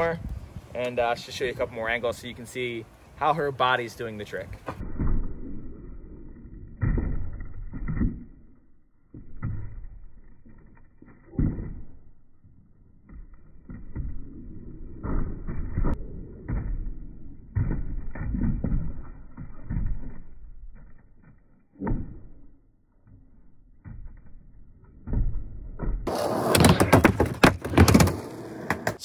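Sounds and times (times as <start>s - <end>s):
skateboard wheels rolling on plywood: 6.3s - 29.0s
skateboard knocking on metal coping: 26.0s - 29.0s.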